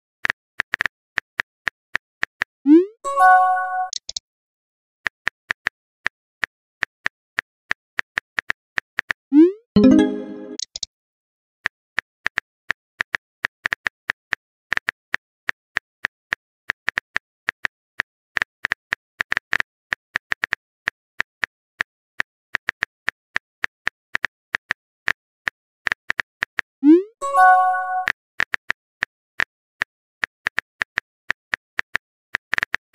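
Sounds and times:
smartphone keyboard clicks: 0:03.9 - 0:04.2.

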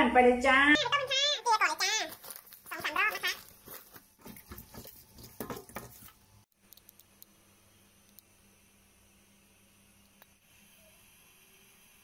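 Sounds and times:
wet squelching and scraping: 0:02.0 - 0:06.2.

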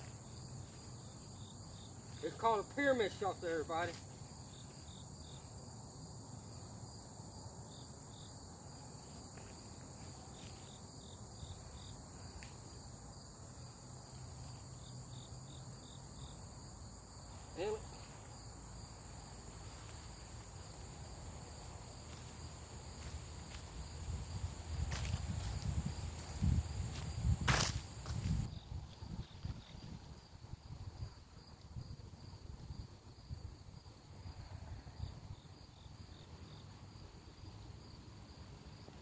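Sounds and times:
crickets and insects chirping: 0:00.0 - 0:39.0
footsteps in dry leaves: 0:19.3 - 0:28.5.

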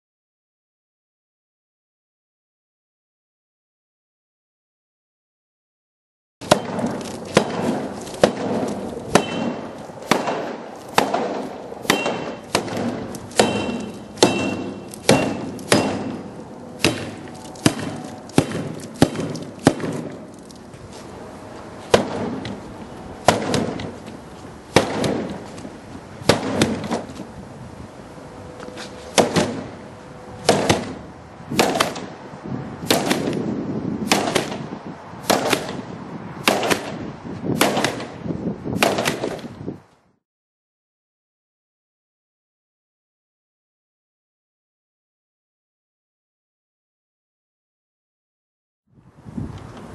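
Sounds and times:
bat whacking plastic board: 0:06.4 - 0:20.3, 0:21.9 - 0:22.6, 0:23.2 - 0:24.0, 0:24.7 - 0:25.6, 0:26.2 - 0:27.2, 0:29.1 - 0:29.7, 0:30.4 - 0:32.2, 0:32.8 - 0:33.4, 0:34.0 - 0:34.7, 0:38.8 - 0:39.6.

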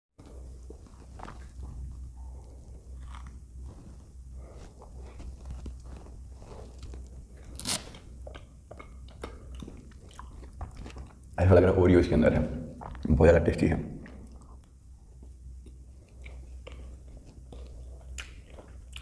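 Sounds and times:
person chewing crunchy ice cream: 0:00.2 - 0:11.4, 0:14.0 - 0:19.0
low steady hum: 0:00.2 - 0:19.0.

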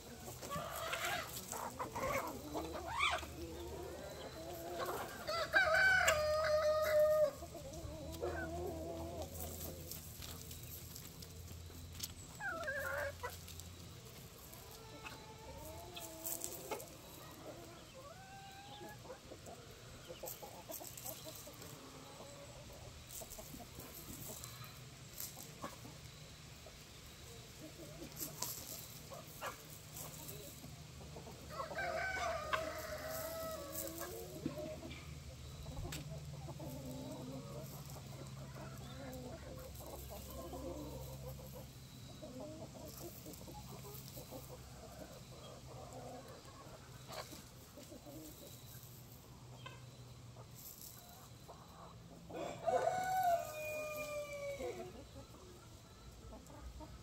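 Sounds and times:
chickens clucking: 0:00.0 - 0:57.0
rooster crowing: 0:02.0 - 0:09.4, 0:31.5 - 0:34.2, 0:52.3 - 0:55.0.

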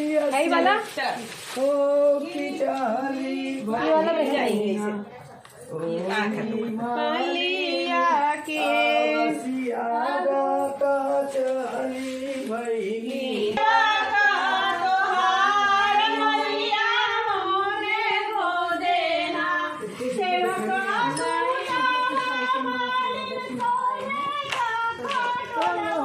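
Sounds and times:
women singing together: 0:00.0 - 0:26.0.

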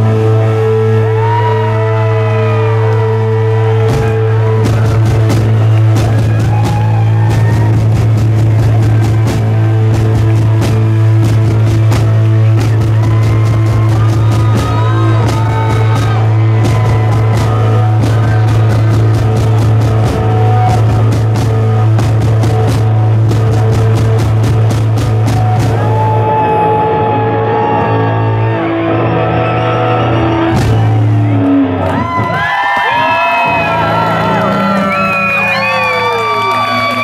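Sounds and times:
fast driving drums: 0:00.0 - 0:27.1, 0:30.4 - 0:37.0
held low bass note: 0:00.0 - 0:32.0
electric guitar with bent notes: 0:00.0 - 0:37.0.

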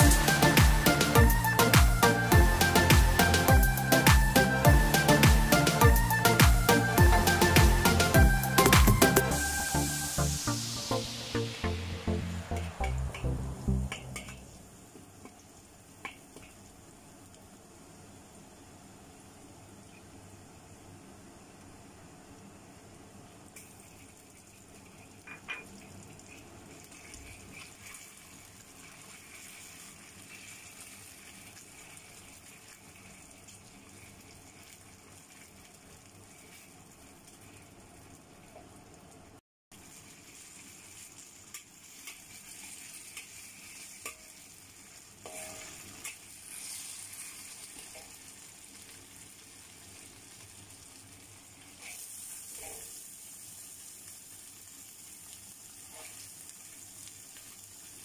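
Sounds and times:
garlic sizzling in oil: 0:00.0 - 0:58.0
metal spatula clicking on pan: 0:13.9 - 0:14.4.

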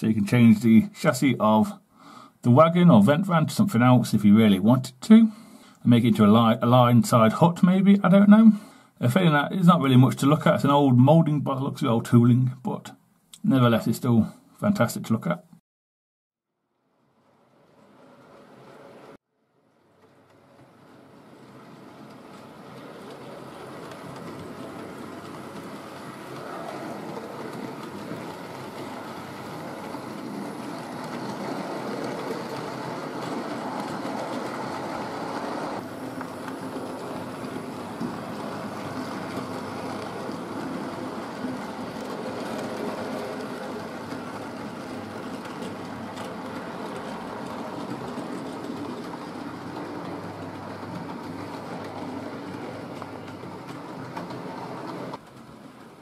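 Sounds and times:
model train whirring rattle: 0:17.4 - 0:56.0.

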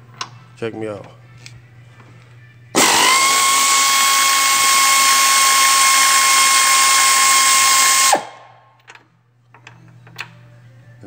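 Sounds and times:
air ratchet high whine: 0:02.8 - 0:08.4.

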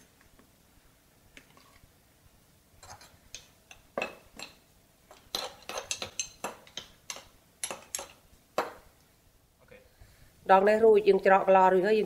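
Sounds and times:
metal spoon clinking against glass jar: 0:02.8 - 0:08.2.

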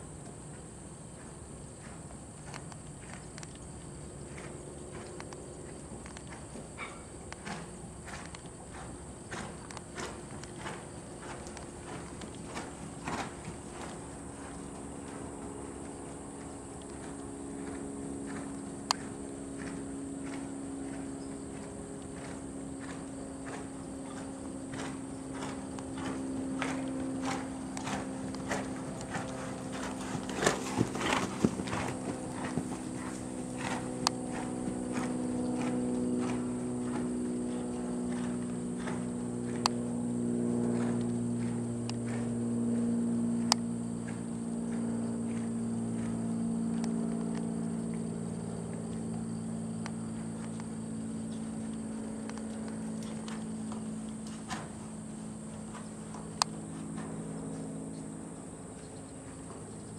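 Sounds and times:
horse hoofbeats on sand: 0:00.0 - 0:59.9
steady low hum: 0:00.0 - 0:59.9.

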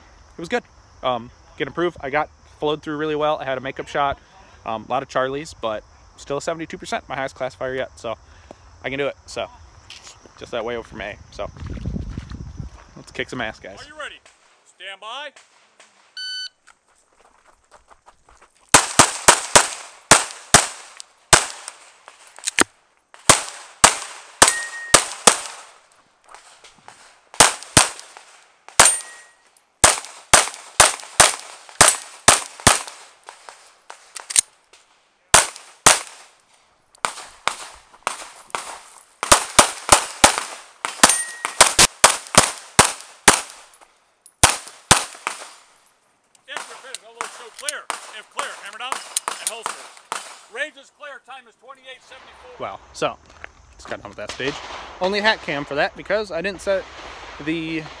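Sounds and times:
brief ringing tone: 0:16.2 - 0:16.6, 0:24.5 - 0:25.0
pistol shots: 0:18.7 - 0:22.6, 0:23.2 - 0:25.8, 0:27.3 - 0:34.4, 0:35.3 - 0:36.3, 0:37.0 - 0:43.7, 0:44.4 - 0:45.6, 0:46.6 - 0:50.5.

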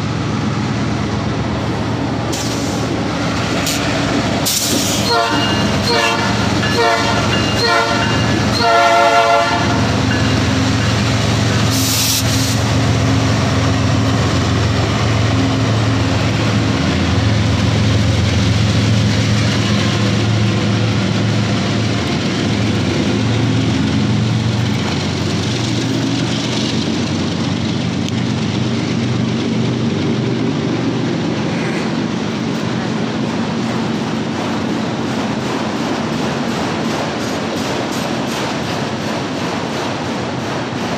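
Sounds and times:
freight train rolling past: 0:00.0 - 0:40.9
short hiss: 0:11.7 - 0:12.6.

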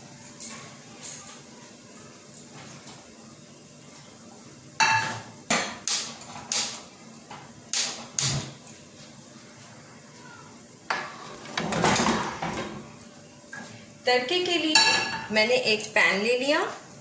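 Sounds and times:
cookware knocking and clattering: 0:04.8 - 0:06.2, 0:14.7 - 0:15.3.

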